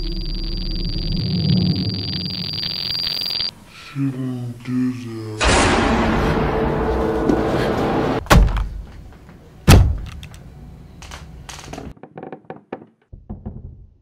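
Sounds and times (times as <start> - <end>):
loud rushing noise: 5.4 - 8.2.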